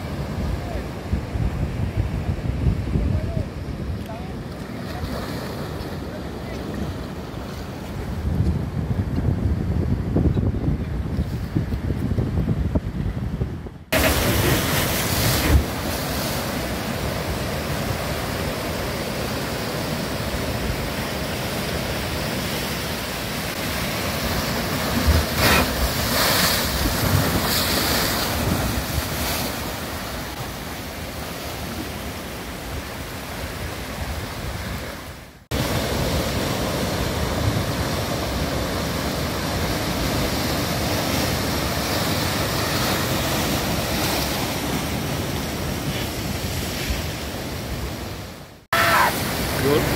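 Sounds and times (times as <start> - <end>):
surf breaking over rocks: 13.9 - 34.2.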